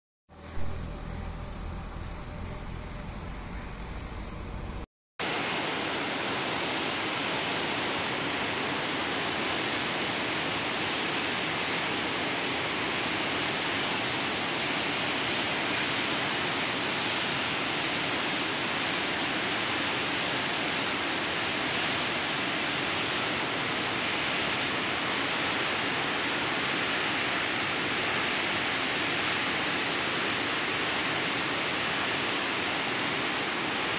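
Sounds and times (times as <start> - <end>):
low outdoor noise: 0.3 - 6.8
water rushing through dam gates: 5.2 - 33.9.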